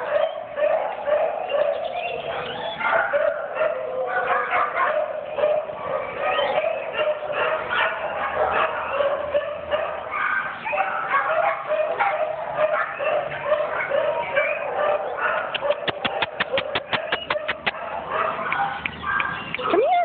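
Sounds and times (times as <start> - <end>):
dogs barking and yipping: 0.0 - 20.0.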